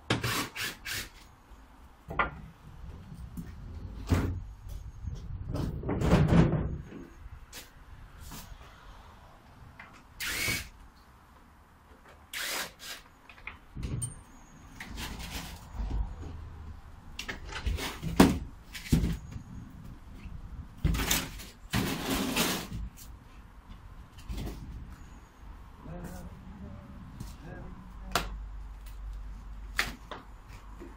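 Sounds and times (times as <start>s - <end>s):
cordless drill running: 10.2s - 10.7s.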